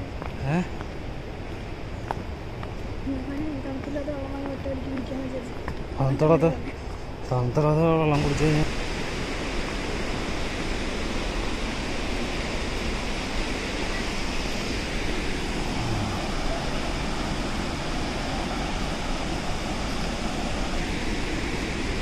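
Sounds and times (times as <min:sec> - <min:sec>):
large waterfall rushing: 0:05.5 - 0:22.0.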